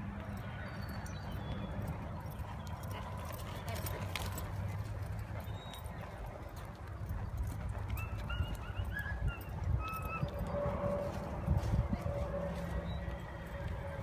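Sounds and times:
horse hoofbeats on soft dirt: 0:00.0 - 0:14.0.

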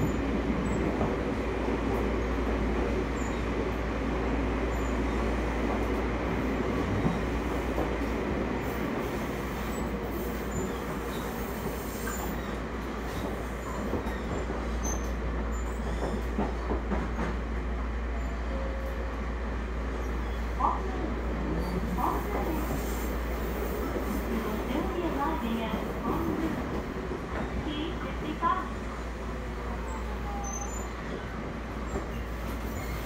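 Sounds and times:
train wheels rumbling: 0:00.0 - 0:33.0.

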